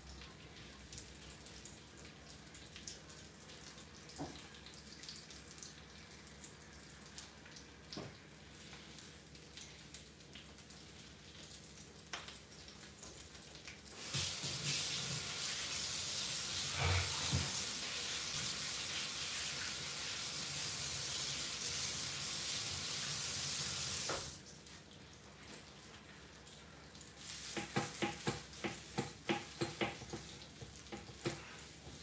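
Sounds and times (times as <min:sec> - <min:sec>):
kitchen faucet water running: 0:10.4 - 0:32.0.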